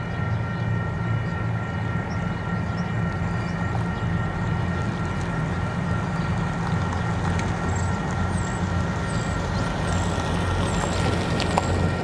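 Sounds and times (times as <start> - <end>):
faint whining tones: 0.0 - 12.0
low engine rumble: 0.0 - 12.0.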